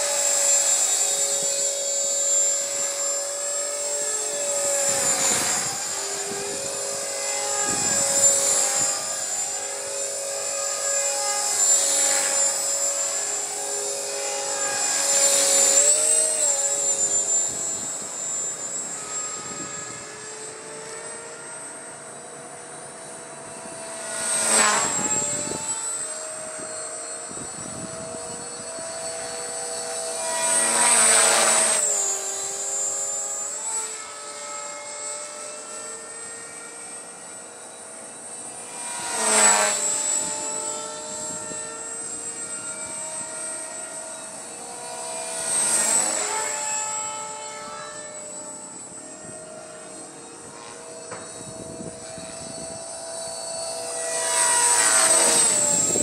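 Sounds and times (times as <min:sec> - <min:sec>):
rc helicopter whine: 0:00.0 - 0:56.0.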